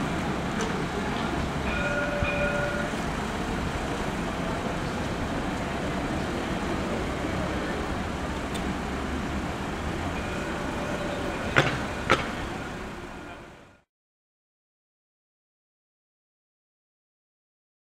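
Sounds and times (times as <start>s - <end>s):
city street traffic: 0.0s - 13.9s
sharp knocks: 11.5s - 12.4s.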